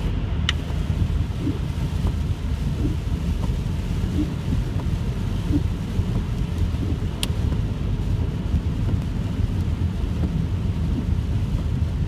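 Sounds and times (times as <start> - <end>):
rain on car: 0.0 - 12.0
tyres on wet road: 0.0 - 12.0
windshield wipers sweeping: 0.0 - 12.0
click: 6.6 - 7.4.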